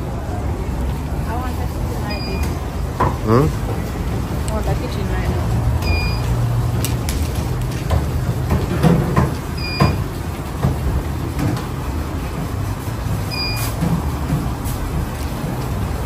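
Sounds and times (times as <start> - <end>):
short high beeps: 5.8 - 6.2, 13.3 - 13.7
knocks and clatter: 6.8 - 12.8, 13.8 - 15.9.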